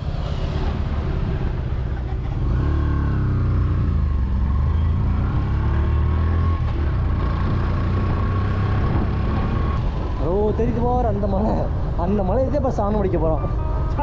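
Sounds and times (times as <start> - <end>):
motorcycle engine revving: 0.0 - 9.8.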